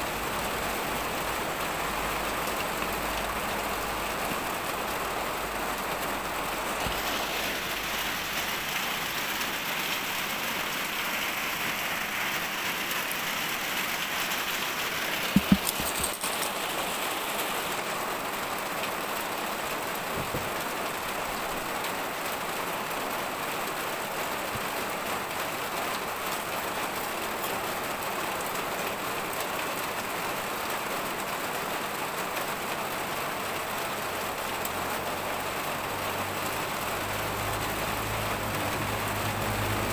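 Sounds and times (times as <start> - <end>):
steady rushing hiss: 0.0 - 22.6
sharp knocks: 15.3 - 16.0.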